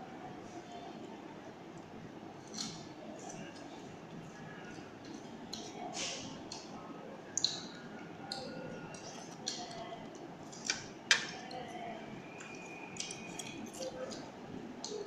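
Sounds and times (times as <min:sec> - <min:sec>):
eating clicks and smacks: 0:02.4 - 0:03.7, 0:07.3 - 0:11.5, 0:12.4 - 0:15.0.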